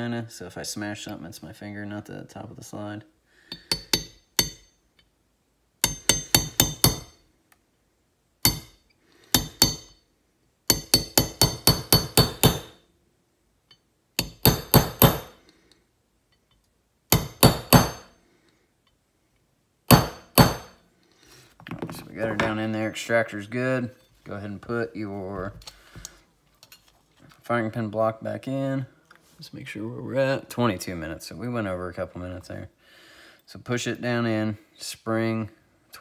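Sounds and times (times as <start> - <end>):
hammer tapping steel punch: 3.5 - 5.1, 5.8 - 7.2, 8.4 - 10.0, 10.7 - 12.8, 13.7 - 15.4, 17.1 - 18.1, 19.9 - 20.8.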